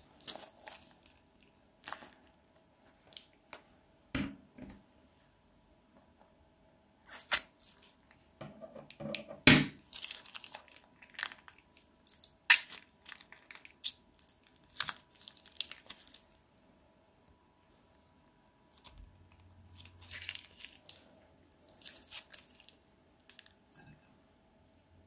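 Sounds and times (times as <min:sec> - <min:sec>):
slime crackling and snapping: 0:09.8 - 0:16.3, 0:19.8 - 0:23.6
plastic bag crinkling: 0:09.8 - 0:16.4, 0:18.8 - 0:23.6.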